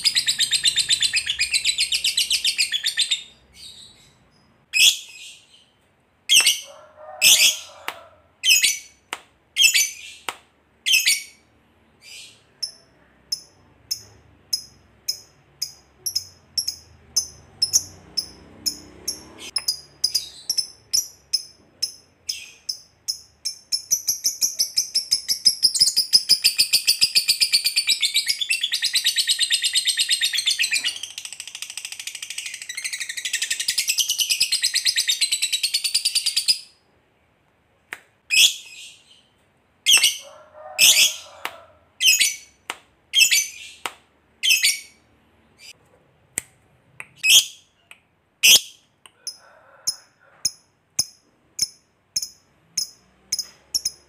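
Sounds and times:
bird sharp chirps: 0:00.0 - 0:06.7.

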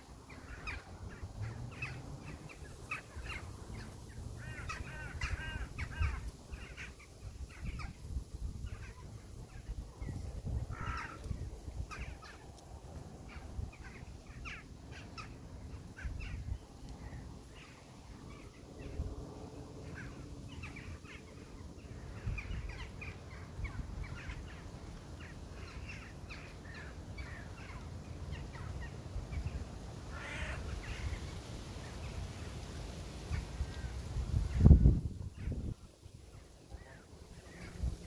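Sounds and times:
crows cawing: 0:04.4 - 0:07.0, 0:10.7 - 0:11.3, 0:30.1 - 0:31.2.

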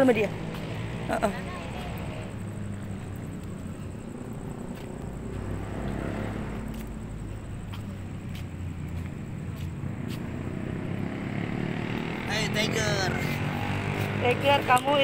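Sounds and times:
distant city traffic rumble: 0:00.0 - 0:15.0.

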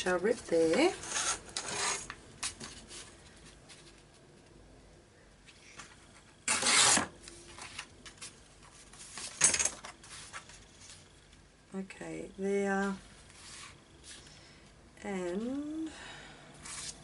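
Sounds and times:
paper tearing: 0:06.5 - 0:07.1.

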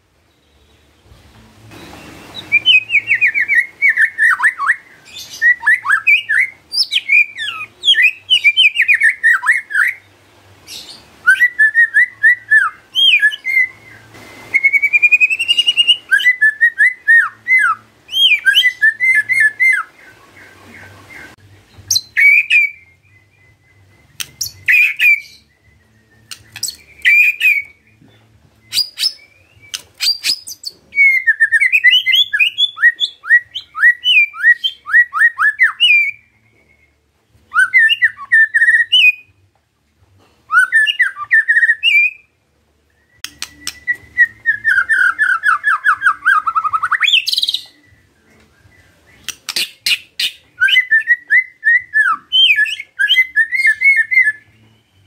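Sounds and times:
bird whistling song: 0:00.3 - 0:39.5, 0:40.5 - 0:55.0
bird sharp clicks: 0:24.2 - 0:25.0, 0:26.3 - 0:27.2, 0:29.7 - 0:30.5, 0:43.2 - 0:44.0, 0:49.2 - 0:50.1.

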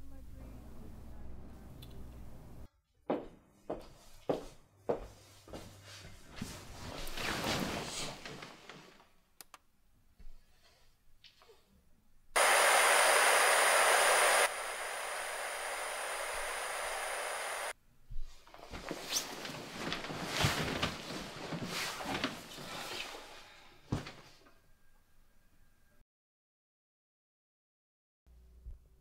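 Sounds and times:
rustling of jacket and bedding: 0:05.1 - 0:08.9, 0:14.5 - 0:23.2
television static hiss: 0:12.4 - 0:17.7.

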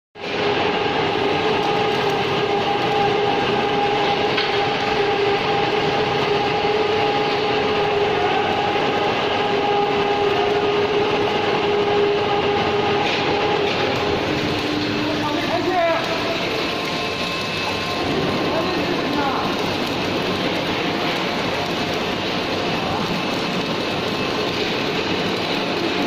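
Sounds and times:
two-note electrical hum: 0:00.2 - 0:26.0
welding arc crackling: 0:00.2 - 0:26.0.

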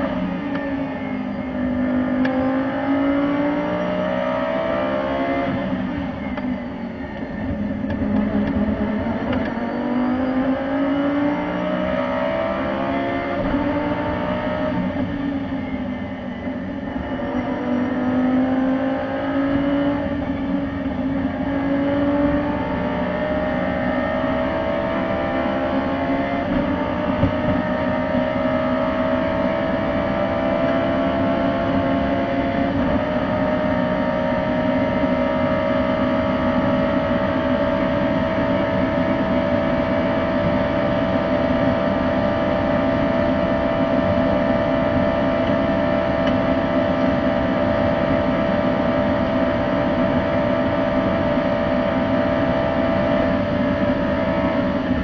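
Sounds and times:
race car engine at full throttle: 0:00.0 - 0:55.0
road and wind noise: 0:00.0 - 0:55.0.

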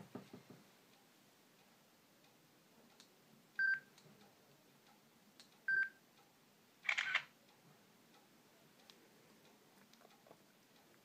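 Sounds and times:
simulated camera shutter click: 0:06.8 - 0:07.3.

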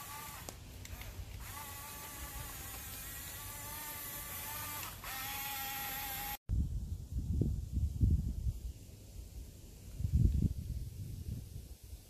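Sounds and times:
toy bulldozer motors whining: 0:00.0 - 0:06.4.

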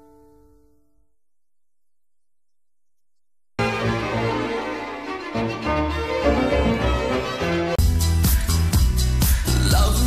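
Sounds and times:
classical string music on radio: 0:03.6 - 0:07.8
pop music with steady beat: 0:07.8 - 0:10.0.

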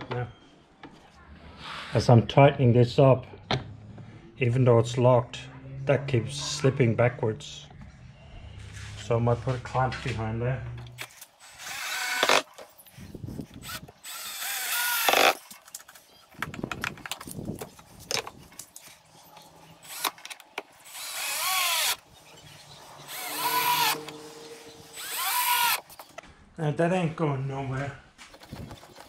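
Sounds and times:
drill driving screws into wood: 0:11.0 - 0:12.6, 0:13.6 - 0:15.4, 0:19.8 - 0:20.2, 0:20.8 - 0:22.0, 0:23.1 - 0:24.2, 0:24.9 - 0:26.1.

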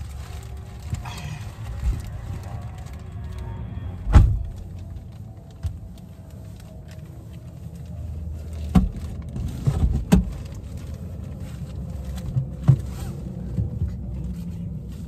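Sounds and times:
low rumble inside car: 0:00.0 - 0:15.0
plastic rustling: 0:00.0 - 0:15.0.

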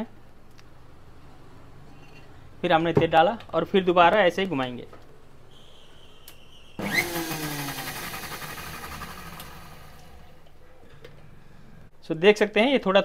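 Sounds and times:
mixer grinder motor: 0:06.8 - 0:10.4.

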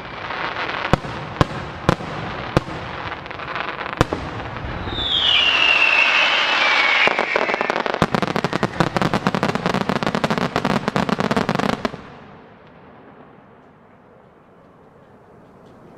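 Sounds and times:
fireworks crackling and popping: 0:00.0 - 0:13.7
faint background noise: 0:07.2 - 0:15.9.

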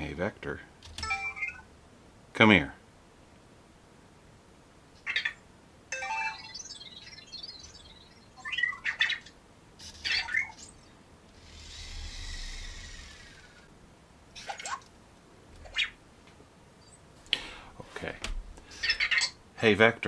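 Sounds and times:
robot electronic beeps and warbles: 0:05.9 - 0:09.2, 0:10.0 - 0:10.9.

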